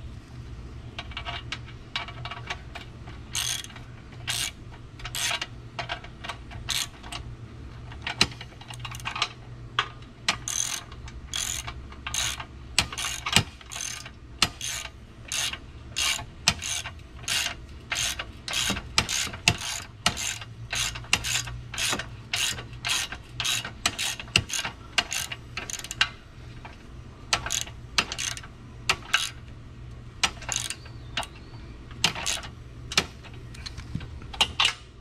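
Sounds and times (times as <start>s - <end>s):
ratchet wrench clicking: 3.3s - 6.0s, 6.7s - 7.0s, 10.3s - 26.1s, 27.3s - 29.4s, 30.2s - 30.8s, 32.0s - 33.1s.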